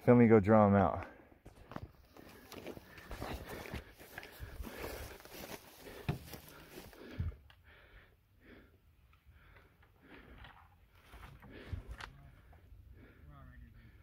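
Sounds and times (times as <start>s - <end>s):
clothing and gear straps rustling: 2.0s - 7.1s.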